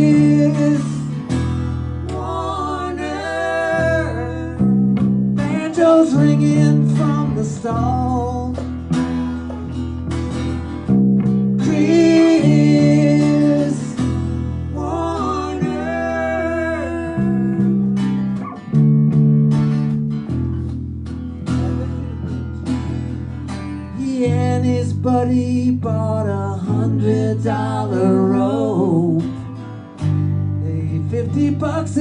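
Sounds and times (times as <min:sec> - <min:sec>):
person singing folk song: 0:00.0 - 0:09.1, 0:11.2 - 0:18.0, 0:23.8 - 0:29.8, 0:30.4 - 0:32.0
acoustic guitars strumming: 0:00.0 - 0:32.0.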